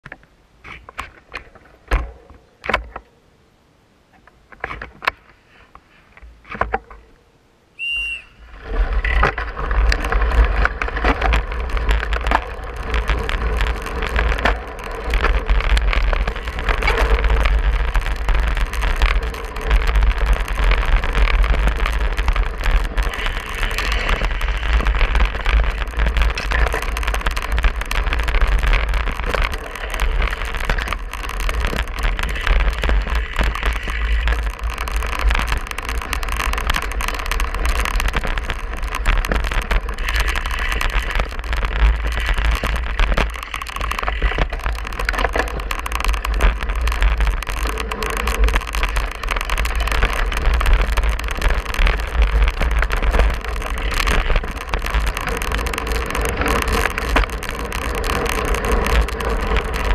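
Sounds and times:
bike tyres on gravel and grass: 0:04.2 - 0:07.2, 0:07.8 - 0:59.9
short whistle: 0:07.8 - 0:08.4
scattered clicks: 0:07.8 - 0:59.9.

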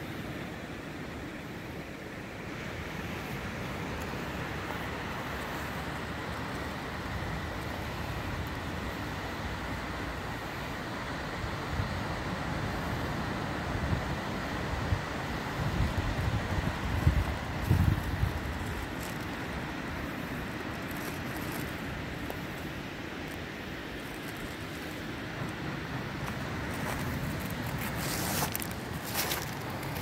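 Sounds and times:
surf on pebble shore: 0:00.0 - 0:30.0
wind buffeting microphone: 0:13.8 - 0:30.0.

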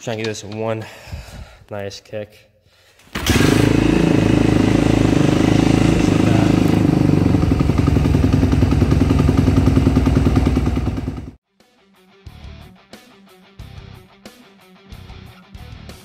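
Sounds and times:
motorcycle engine running: 0:03.2 - 0:11.4.

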